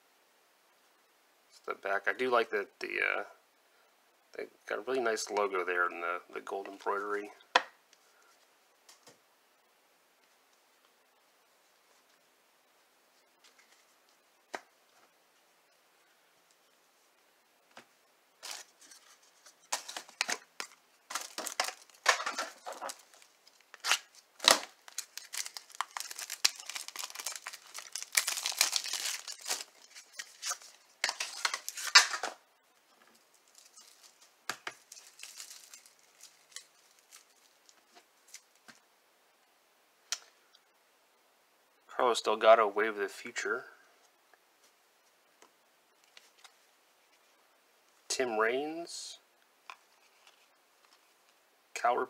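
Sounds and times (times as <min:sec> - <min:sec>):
wrapper tearing and crinkling: 0:18.4 - 0:32.3, 0:33.2 - 0:38.6.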